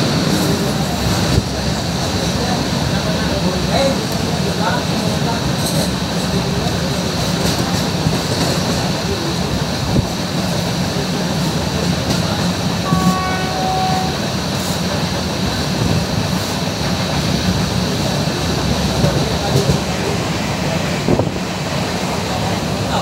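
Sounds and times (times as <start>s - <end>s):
passenger train running on track: 0.0s - 23.0s
brief high tone: 12.9s - 14.2s.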